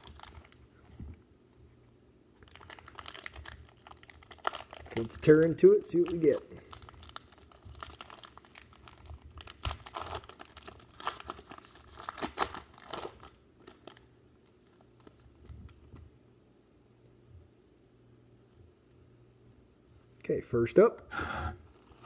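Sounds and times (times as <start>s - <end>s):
foil wrapper tearing and crinkling: 0.0s - 0.6s, 2.4s - 14.1s.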